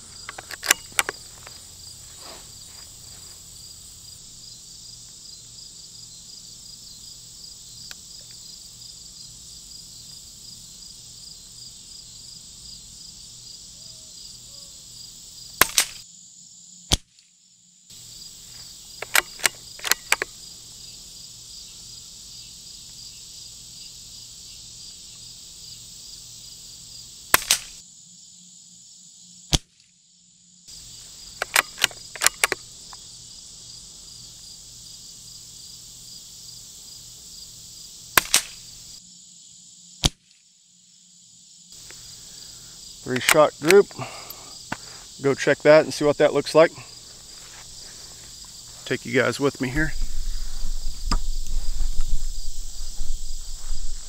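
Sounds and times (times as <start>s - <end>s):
crickets chirring: 0.0s - 54.0s
rifle bolt clicks: 0.3s - 1.2s, 19.0s - 20.3s, 31.4s - 32.6s
suppressed rifle shots: 15.6s - 16.0s, 19.0s - 20.3s, 27.3s - 27.8s, 38.2s - 38.6s.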